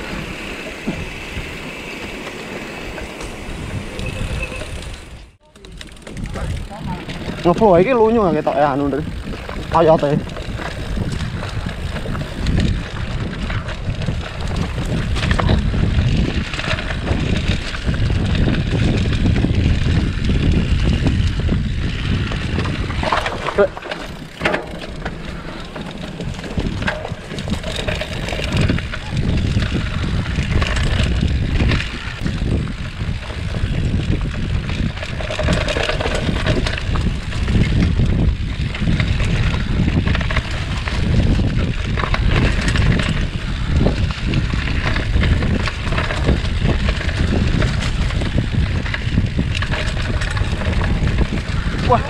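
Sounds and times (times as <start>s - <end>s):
bike rattles and clicks: 0.0s - 52.0s
tyres rumbling on dirt: 0.0s - 52.0s
wind buffeting microphone: 0.0s - 52.0s.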